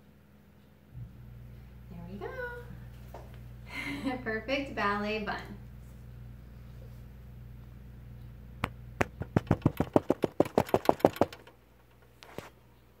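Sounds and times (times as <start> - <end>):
rapid sharp taps: 8.6 - 12.0.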